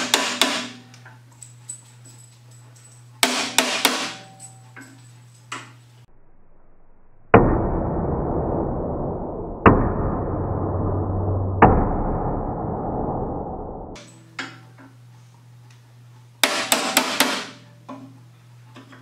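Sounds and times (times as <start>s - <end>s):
booming hammer impacts: 7.2s - 14.0s.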